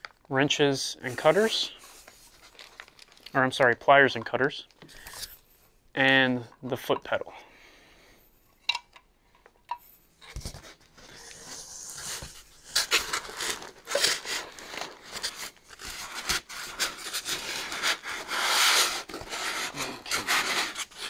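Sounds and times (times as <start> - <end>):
styrofoam rubbing and creaking: 1.0 - 2.7, 10.6 - 21.0
plastic wrap rustling: 1.1 - 3.6, 10.6 - 21.0.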